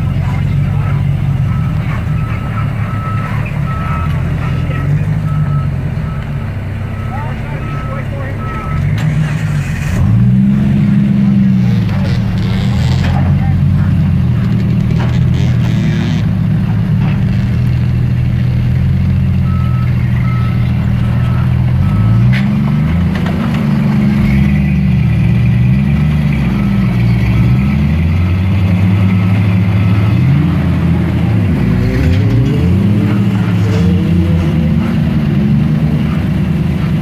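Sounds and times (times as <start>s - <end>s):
reversing alarm beeping: 1.4s - 8.9s, 19.4s - 22.3s, 28.0s - 30.8s
car engine revving: 6.9s - 37.0s.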